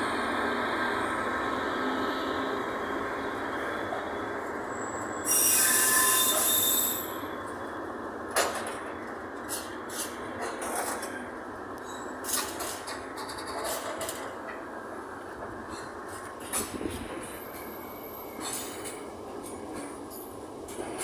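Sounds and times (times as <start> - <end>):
train wagons rumbling on rails: 0.0 - 21.0
high-pitched wheel squeal: 4.6 - 7.5.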